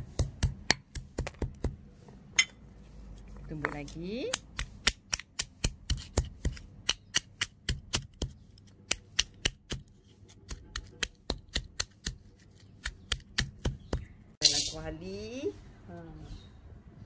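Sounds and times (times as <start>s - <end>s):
pestle pounding in stone mortar: 0.0s - 1.8s, 3.6s - 14.1s.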